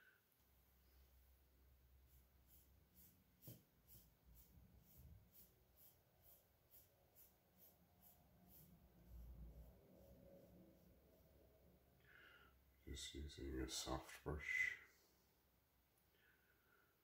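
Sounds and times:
paintbrush dabbing paint: 1.8 - 11.8.

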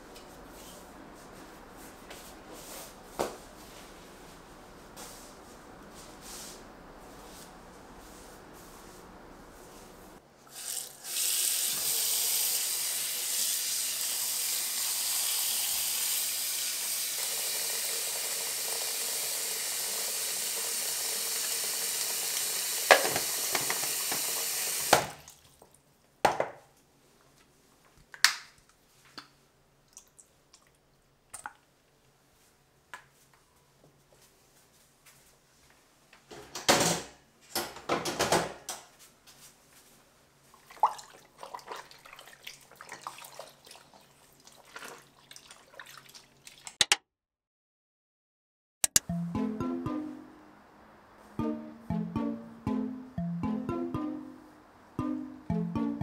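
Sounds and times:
tap water running into bowl: 16.9 - 25.6
wet cloth squishing and splashing: 40.5 - 46.8.

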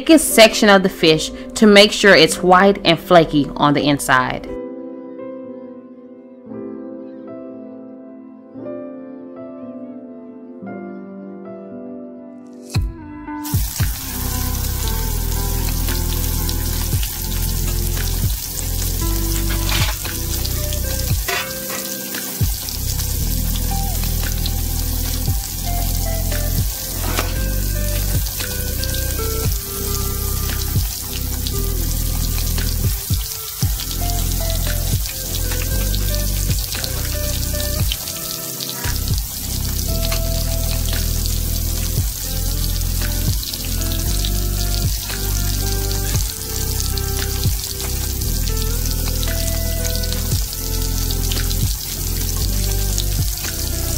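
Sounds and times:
background music: 0.0 - 53.9
fish deep-frying in oil: 13.4 - 53.9.

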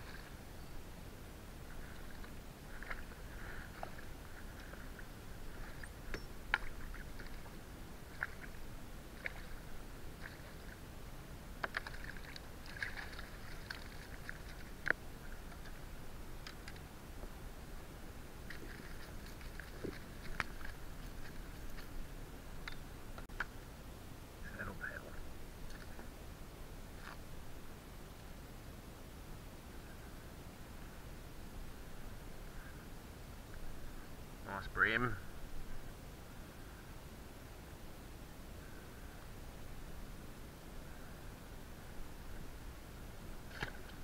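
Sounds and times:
fish splashing in water: 11.6 - 14.8.

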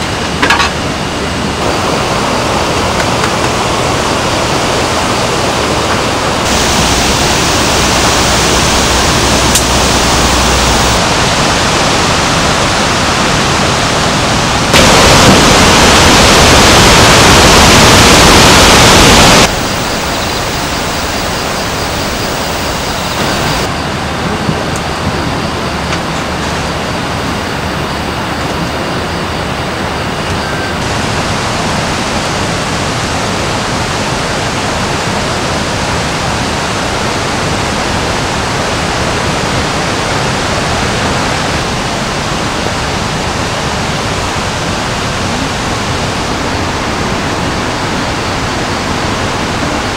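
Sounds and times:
stream rushing over rocks: 1.6 - 23.7.

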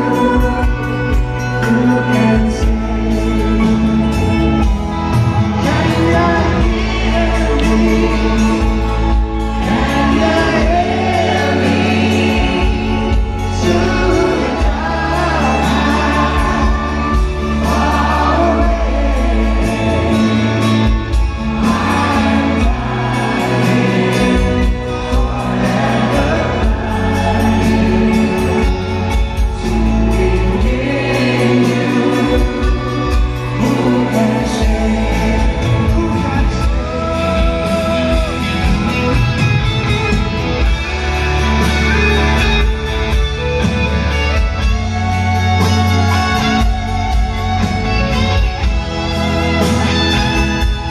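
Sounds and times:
man singing lead vocal: 0.0 - 39.4
crowd singing along: 0.0 - 50.9
live pop-rock band: 0.0 - 50.9
women singing backing vocals: 5.6 - 9.0, 9.6 - 20.7, 21.4 - 28.9, 29.6 - 38.5.

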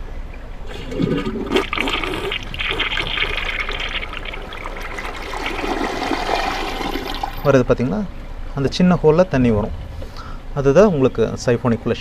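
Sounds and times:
toilet flushing: 0.6 - 7.6.

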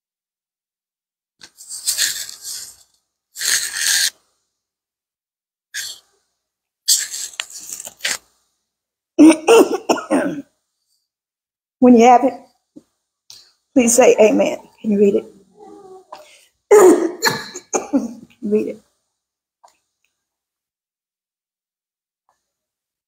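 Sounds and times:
woman coughing: 9.2 - 10.5, 16.7 - 18.2.

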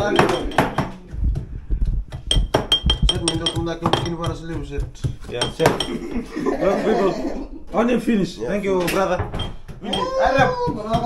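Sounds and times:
utensil clinking against ceramic bowls: 0.0 - 1.0, 2.2 - 6.3, 8.9 - 11.0.

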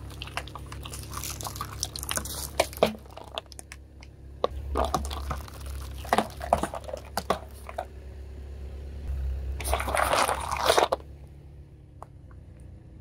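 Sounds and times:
plastic bottles cracking and popping: 0.0 - 7.9, 9.6 - 11.0.

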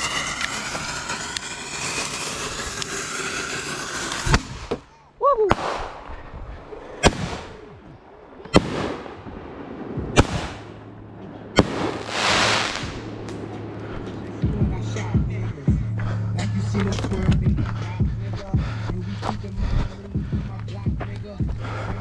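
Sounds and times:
rising and falling whistle: 0.0 - 4.4
firework hissing spray: 0.0 - 4.7, 11.6 - 13.3
loud hissing burst: 0.0 - 4.7, 11.6 - 13.3
firework bangs with ringing tail: 11.6 - 13.3.

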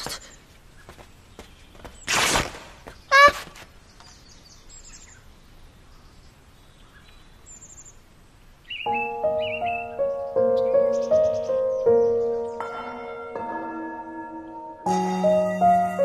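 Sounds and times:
birdsong chirps: 0.0 - 16.0
soft music with held notes: 8.9 - 16.0.

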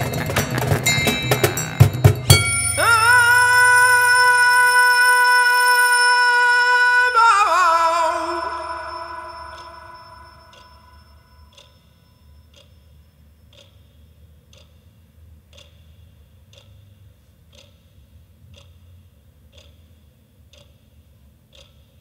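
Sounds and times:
clock ticking: 0.0 - 6.1, 8.0 - 22.0
low hum: 0.0 - 12.5.

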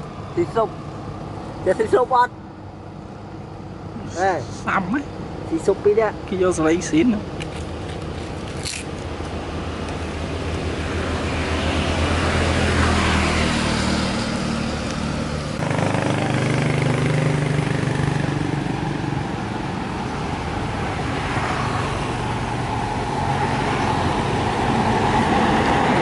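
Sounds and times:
vehicle engine drone: 0.0 - 26.0.

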